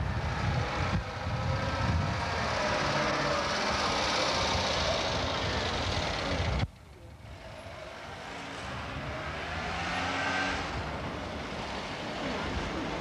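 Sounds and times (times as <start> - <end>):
car approaching: 0.0 - 13.0
street traffic: 0.0 - 13.0
car driving past: 7.4 - 13.0.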